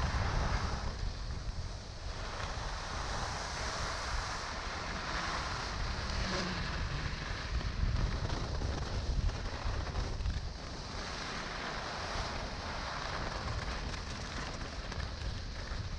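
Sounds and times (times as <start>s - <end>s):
skis sliding on snow: 0.0s - 15.9s
wind buffeting microphone: 0.0s - 15.9s.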